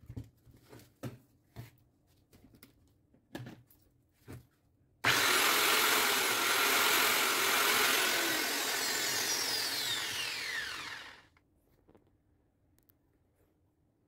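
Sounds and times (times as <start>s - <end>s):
angle grinder whining: 5.0s - 11.4s.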